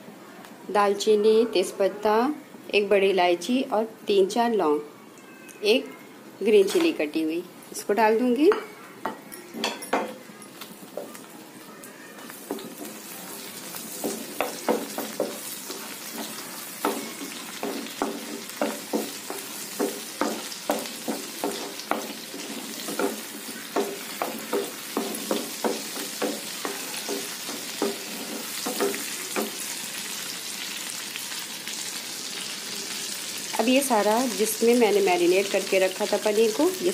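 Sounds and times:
spices sizzling in butter: 0:10.2 - 0:36.9
spatula scraping a pan: 0:12.3 - 0:29.7.

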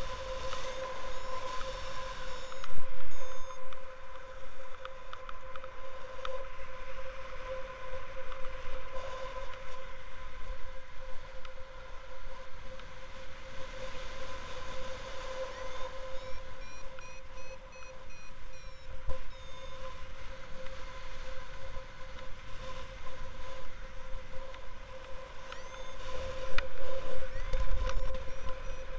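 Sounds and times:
quick repeated beeps: 0:03.1 - 0:03.6, 0:16.2 - 0:19.7
steady electronic tone: 0:15.7 - 0:19.9, 0:27.3 - 0:28.9.

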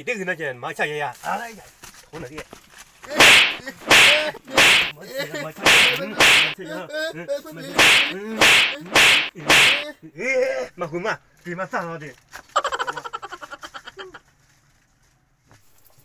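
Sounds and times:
sharp swishing strokes: 0:03.2 - 0:05.0, 0:05.6 - 0:06.6, 0:07.7 - 0:09.9.

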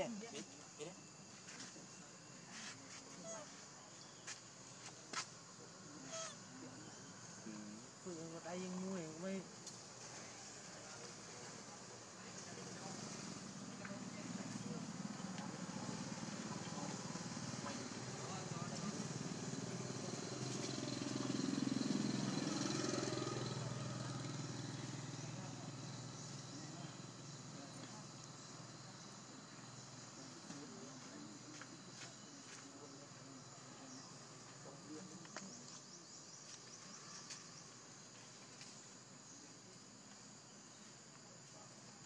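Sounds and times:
high-pitched insect chorus: 0:00.0 - 0:42.0
vehicle engine passing: 0:12.6 - 0:27.4.

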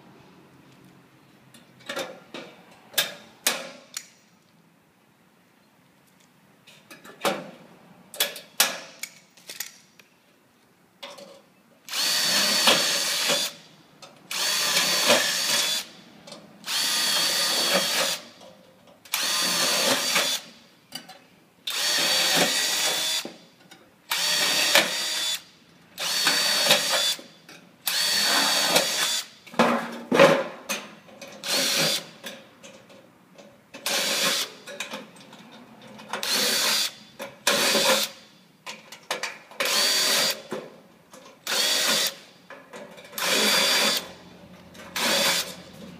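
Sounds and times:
impact driver driving screws: 0:11.9 - 0:13.6, 0:14.3 - 0:15.9, 0:16.7 - 0:18.2, 0:19.1 - 0:20.5, 0:21.7 - 0:23.3, 0:24.1 - 0:25.4, 0:26.0 - 0:27.3, 0:27.9 - 0:29.3, 0:36.2 - 0:38.2, 0:39.6 - 0:40.5, 0:41.4 - 0:42.2, 0:43.2 - 0:44.1, 0:45.0 - 0:45.6.

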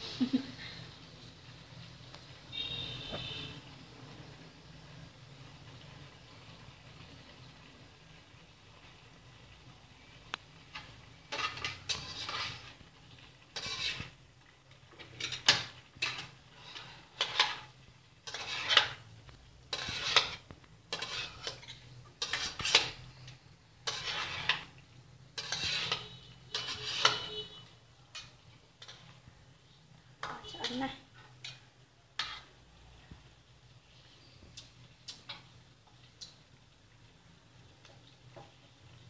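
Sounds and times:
metal spatula scraping a wok: 0:08.8 - 0:29.3, 0:30.2 - 0:33.0.

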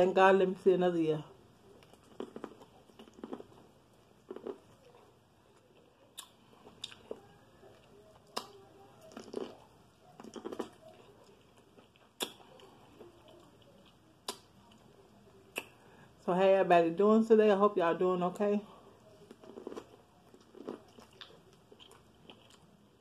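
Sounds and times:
person chewing corn: 0:01.7 - 0:14.9, 0:19.3 - 0:23.0.

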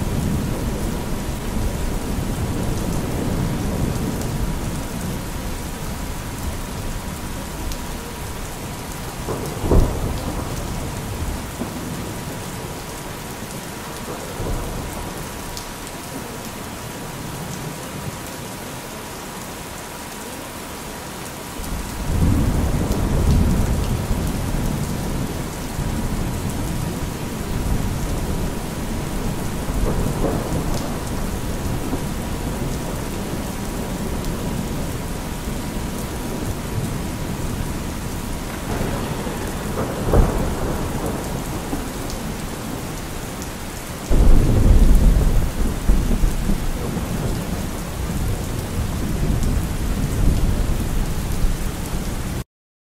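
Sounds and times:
steady rain: 0:00.0 - 0:52.4
rolling thunder: 0:09.1 - 0:12.3, 0:21.6 - 0:43.1, 0:44.0 - 0:51.6.

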